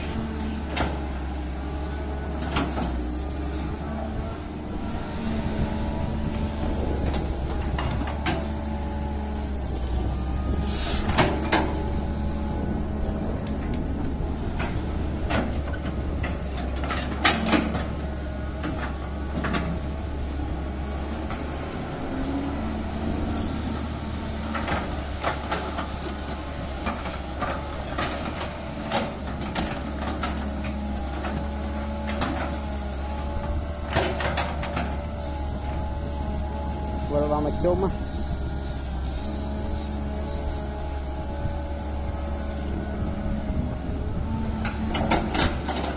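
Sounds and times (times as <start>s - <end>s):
excavator diesel engine: 0.0s - 45.9s
hydraulic whine: 2.9s - 17.3s, 29.1s - 45.9s.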